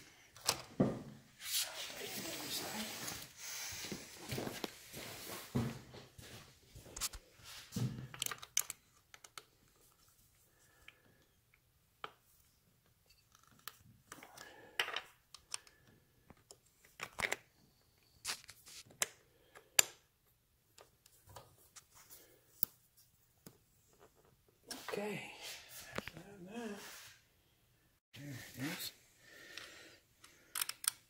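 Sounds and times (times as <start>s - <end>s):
screwdriver clicks and scrapes: 30.5s - 31.0s.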